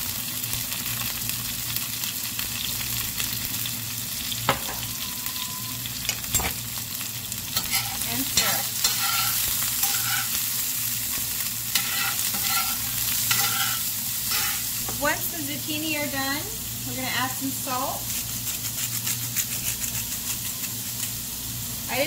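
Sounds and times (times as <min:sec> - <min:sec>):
vegetables sizzling in oil: 0:00.0 - 0:22.0
metal spoon scraping a pan: 0:07.5 - 0:14.9.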